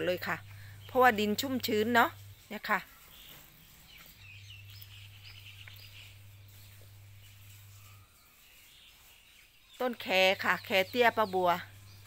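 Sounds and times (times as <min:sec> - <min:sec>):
low steady hum: 0:00.0 - 0:09.2, 0:09.8 - 0:12.0
faint birds chirping: 0:00.0 - 0:12.0.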